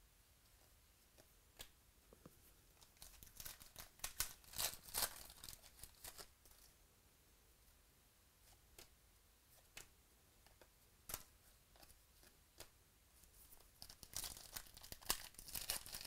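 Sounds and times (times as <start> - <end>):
foil wrapper crackling: 13.8 - 16.0.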